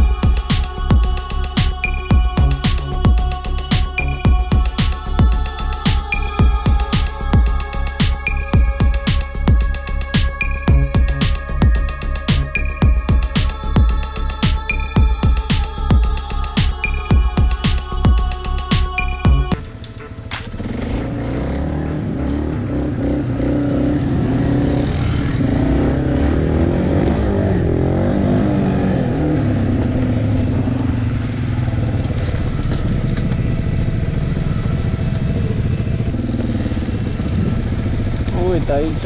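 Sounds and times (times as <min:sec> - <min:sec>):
atv engine revving: 0:20.4 - 0:39.0.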